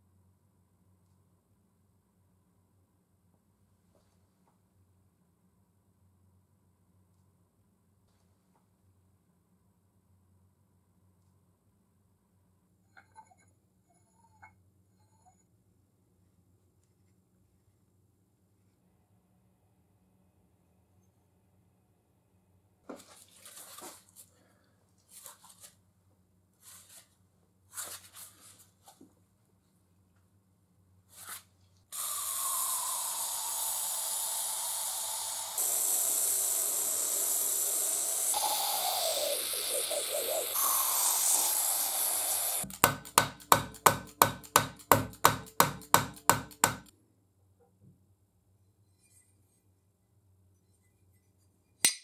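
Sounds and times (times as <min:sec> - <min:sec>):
aerosol can spraying: 0:31.9 - 0:46.9
hammer striking metal vise: 0:42.7 - 0:46.9
parts knocking: 0:42.7 - 0:46.9.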